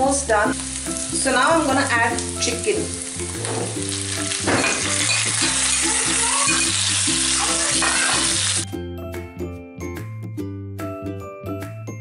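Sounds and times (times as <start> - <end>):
background music: 0.0 - 12.0
chicken sizzling in hot oil: 0.5 - 8.7.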